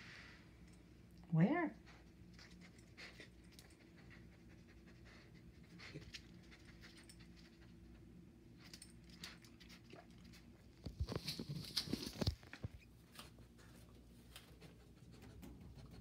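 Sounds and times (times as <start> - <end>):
low steady hum: 0.0 - 16.0
dog panting and sniffing: 1.8 - 10.5, 13.4 - 16.0.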